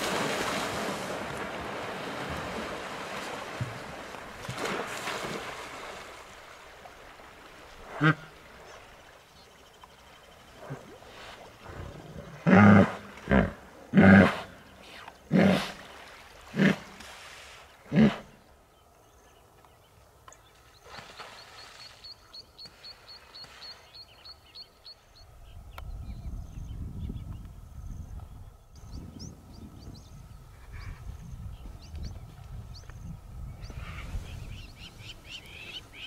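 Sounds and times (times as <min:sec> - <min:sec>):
hippopotamus grunting honks: 0:07.8 - 0:08.4, 0:12.4 - 0:14.5.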